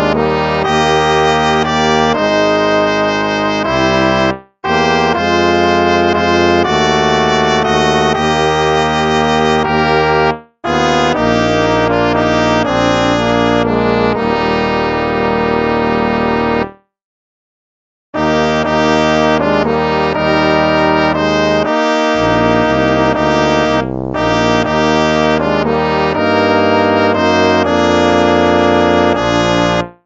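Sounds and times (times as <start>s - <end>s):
brass hymn music: 0.0s - 16.8s, 18.2s - 30.0s.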